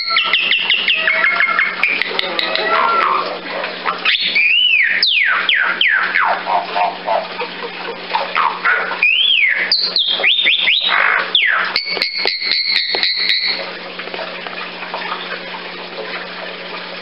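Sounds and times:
mynah whistling: 4.0s - 6.4s, 9.0s - 11.6s.

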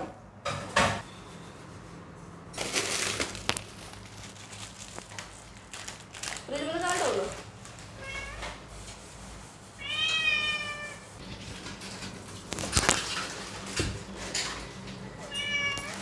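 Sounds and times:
cat meowing: 8.0s - 8.6s, 9.8s - 11.1s, 15.2s - 16.0s.

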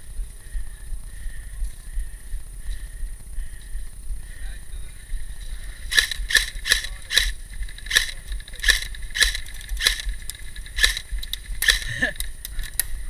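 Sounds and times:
airsoft gun shots: 5.9s - 12.2s.

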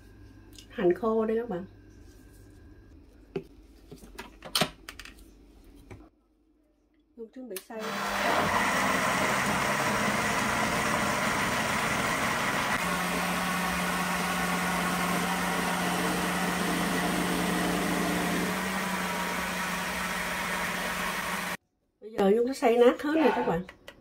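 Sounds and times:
electric blender whirring: 7.8s - 21.6s.

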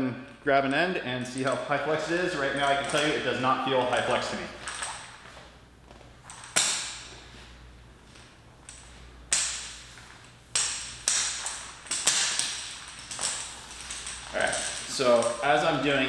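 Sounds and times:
hose loops slapping and swishing: 8.1s - 16.0s.

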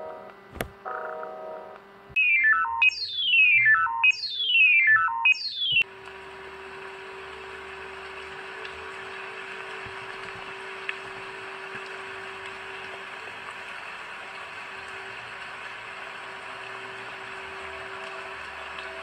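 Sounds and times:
descending electronic beeps: 2.2s - 5.8s
rain-like hiss: 5.9s - 19.0s.

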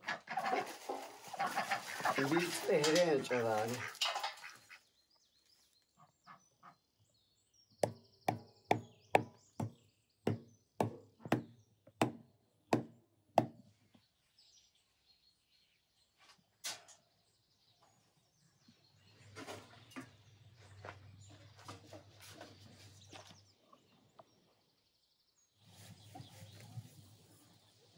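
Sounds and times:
hatchet chopping on wooden block: 7.8s - 12.2s, 12.8s - 13.6s.

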